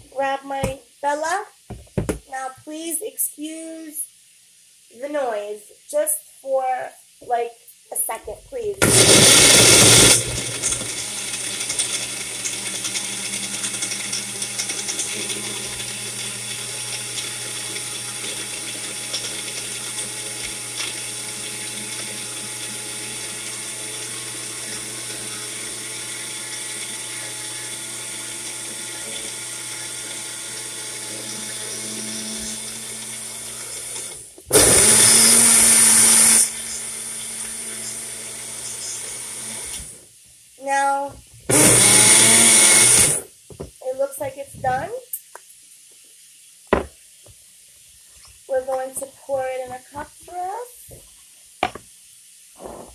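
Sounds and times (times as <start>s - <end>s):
blender running: 8.8s - 40.0s, 41.5s - 43.3s.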